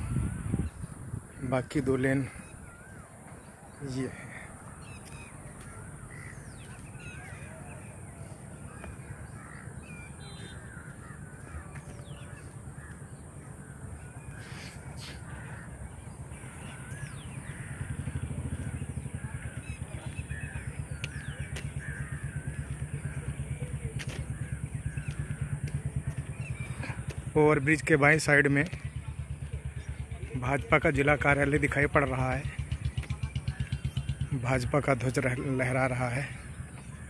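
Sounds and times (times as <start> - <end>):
birds calling: 0.0 - 37.0
low engine hum: 0.0 - 37.0
crows cawing: 1.3 - 27.2.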